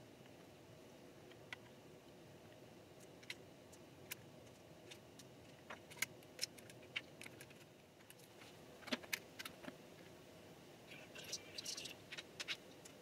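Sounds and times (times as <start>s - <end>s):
faint hiss: 9.8s - 13.0s.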